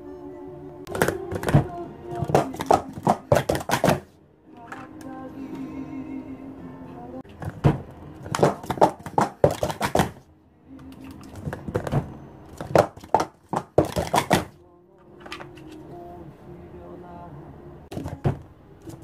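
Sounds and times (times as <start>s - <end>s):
plastic cups clacking: 0.9s - 4.9s, 7.3s - 10.2s, 10.8s - 12.0s, 12.6s - 14.6s.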